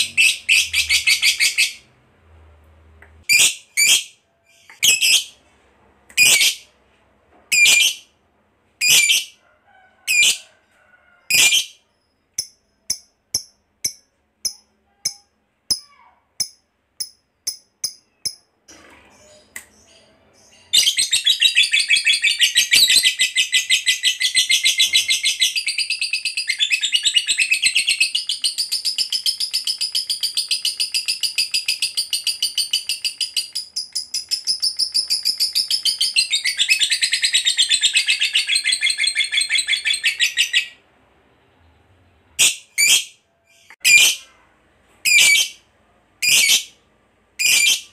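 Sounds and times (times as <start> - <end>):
lovebird chirping: 7.5 - 8.1, 8.8 - 9.4, 11.3 - 18.4.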